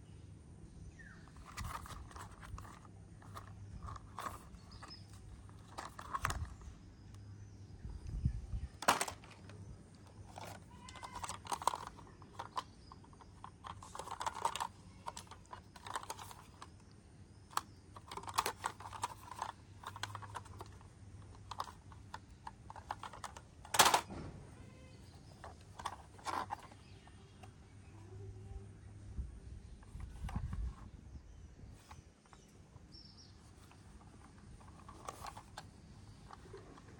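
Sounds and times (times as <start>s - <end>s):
plastic toy vehicles clattering: 1.3s - 6.7s, 8.8s - 27.5s, 33.4s - 36.9s.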